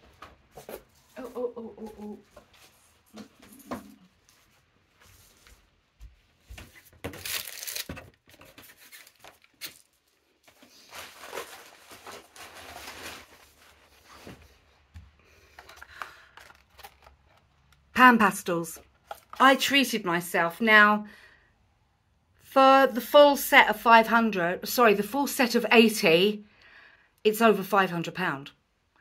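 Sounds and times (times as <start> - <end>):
rustling and crinkling: 0.0 - 17.9.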